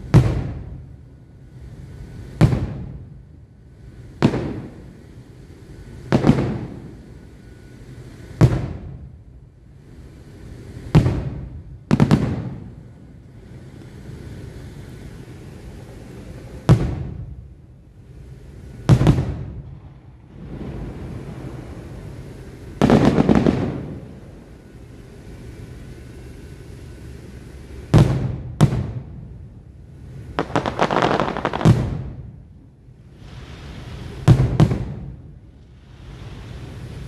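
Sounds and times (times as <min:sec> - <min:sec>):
firework crackling: 0:00.0 - 0:37.0
firework shells bursting: 0:18.2 - 0:26.8, 0:30.1 - 0:32.4, 0:33.2 - 0:37.0.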